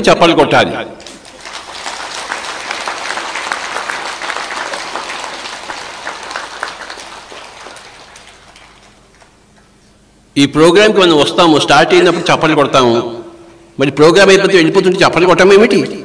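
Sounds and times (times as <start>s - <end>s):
audience applause: 1.0s - 9.8s.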